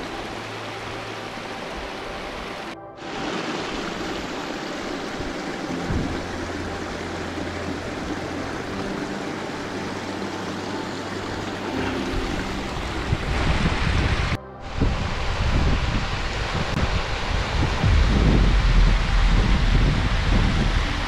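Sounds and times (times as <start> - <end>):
flowing stream water: 0.0 - 21.0
wind buffeting on microphone: 5.0 - 6.4, 12.2 - 21.0.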